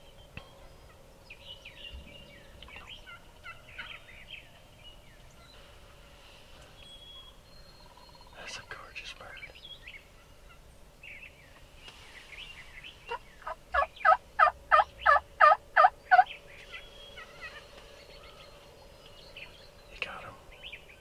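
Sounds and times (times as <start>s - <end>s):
faint songbird chirps: 0.0s - 21.0s
turkey yelps: 13.1s - 16.3s.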